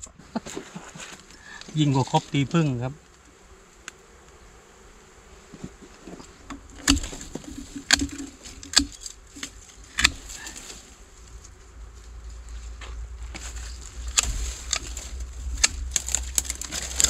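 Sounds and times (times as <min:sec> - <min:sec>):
bees buzzing: 0:00.0 - 0:17.0
high insect drone: 0:00.0 - 0:17.0.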